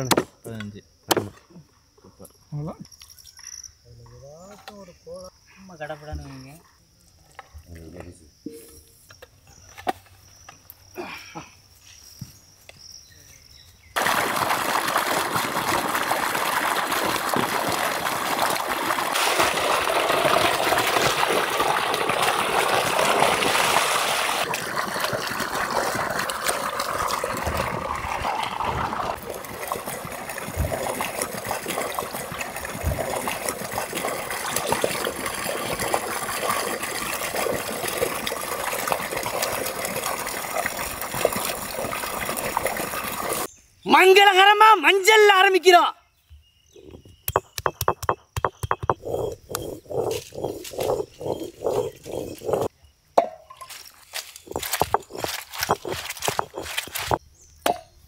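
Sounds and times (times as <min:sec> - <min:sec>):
water sloshing in metal pot: 0:14.0 - 0:43.5, 0:48.7 - 0:57.2.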